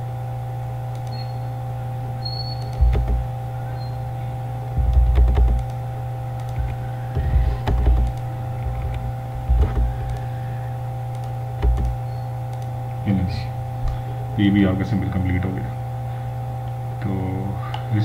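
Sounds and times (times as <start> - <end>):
electrical hum: 0.0 - 18.0
mouse and keyboard clicks: 6.4 - 10.3, 11.1 - 12.7.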